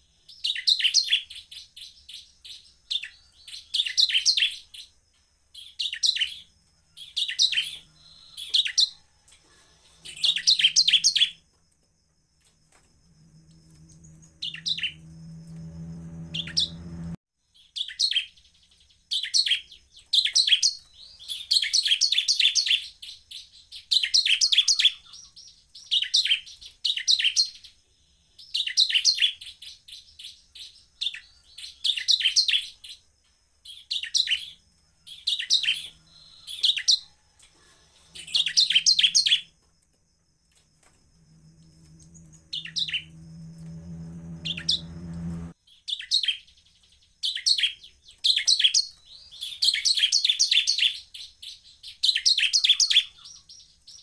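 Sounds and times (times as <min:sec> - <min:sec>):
bird chattering song: 0:05.6 - 0:09.0, 0:09.8 - 0:11.4, 0:17.6 - 0:27.7, 0:42.0 - 0:43.3, 0:44.4 - 0:54.0
low hum: 0:12.9 - 0:17.2, 0:40.8 - 0:45.6.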